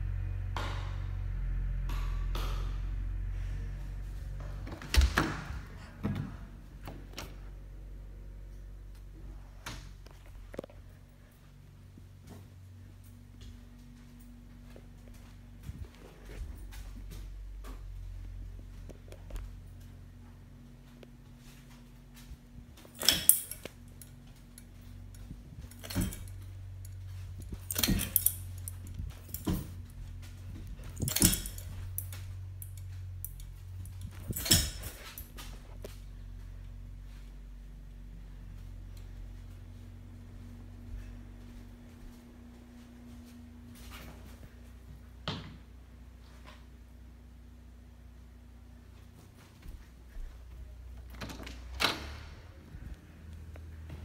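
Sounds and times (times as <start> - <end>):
low hum: 0.0 - 54.0
metallic clinks and jangles: 22.9 - 30.0, 30.8 - 35.4.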